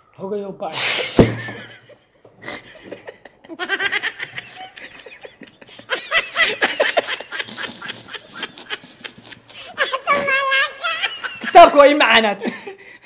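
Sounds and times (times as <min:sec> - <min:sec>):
young men laughing: 0:01.1 - 0:12.8.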